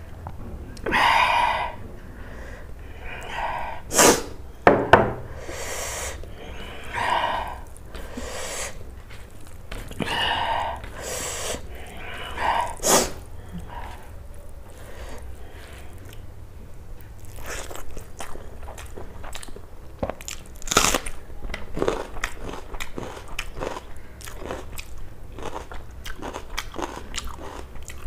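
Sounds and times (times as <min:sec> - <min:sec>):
dishes knocking together: 0:04.7 - 0:05.3.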